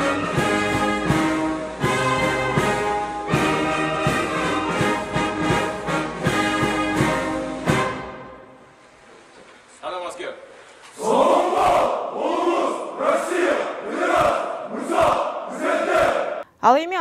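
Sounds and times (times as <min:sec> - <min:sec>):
drum beats: 0:00.0 - 0:08.2, 0:14.1 - 0:15.4
brass band playing: 0:00.0 - 0:08.8.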